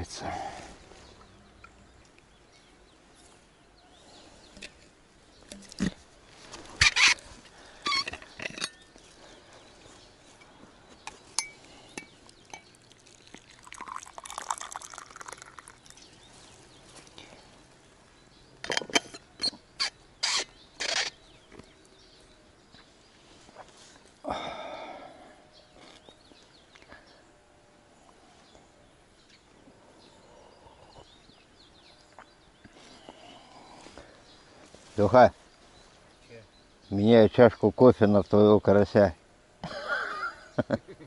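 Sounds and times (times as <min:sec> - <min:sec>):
coffee pouring into glass mug: 0:12.4 - 0:16.1.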